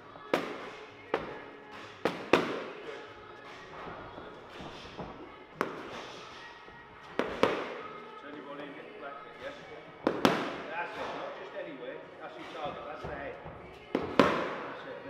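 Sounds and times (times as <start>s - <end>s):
boxing gloves hitting pads: 0.2s - 8.0s, 10.0s - 11.3s, 13.8s - 14.8s.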